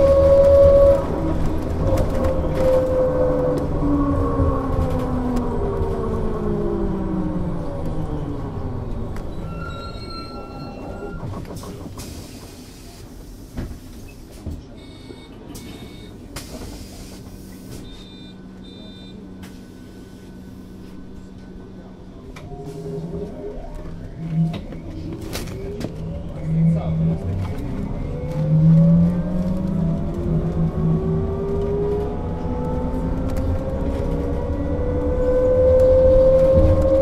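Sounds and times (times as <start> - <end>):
short electronic beeps: 14.8 - 16.2, 17.8 - 19.2.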